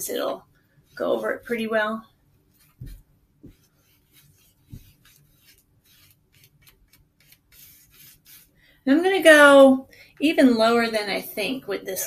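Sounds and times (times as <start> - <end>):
paintbrush scratching on paper: 0.9 - 8.6
dull thumps: 2.7 - 3.7.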